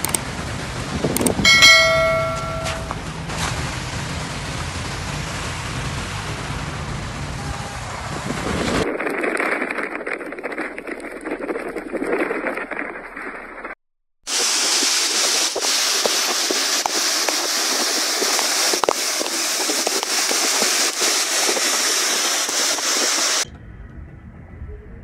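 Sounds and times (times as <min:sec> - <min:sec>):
heavy rain pouring: 0:00.0 - 0:08.8, 0:14.3 - 0:23.5
low rumble: 0:23.4 - 0:25.0.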